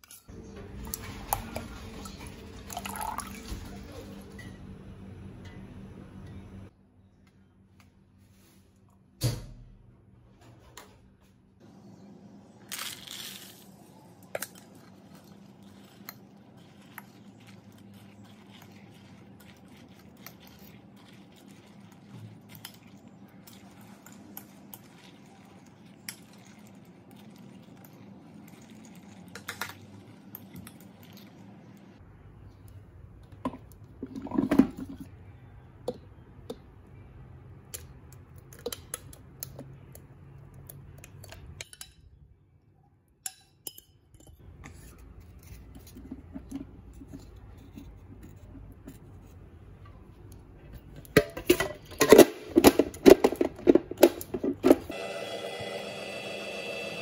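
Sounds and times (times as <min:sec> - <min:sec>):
ice cream maker motor humming: 0:54.6 - 0:57.0.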